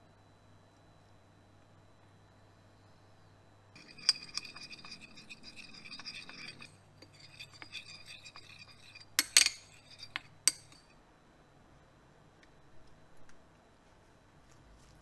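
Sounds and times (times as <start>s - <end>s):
metal spoon clinking in glass bowl: 3.8s - 10.9s.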